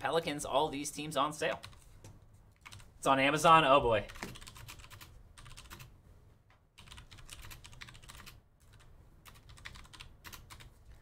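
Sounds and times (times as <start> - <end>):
typing on computer keyboard: 2.6 - 2.9, 4.1 - 5.9, 6.8 - 10.7.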